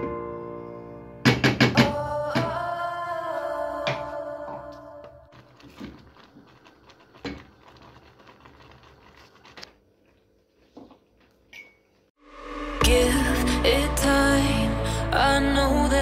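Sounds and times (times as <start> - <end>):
background music: 0.0 - 5.3, 12.2 - 16.0
porridge bubbling and popping: 5.3 - 11.7.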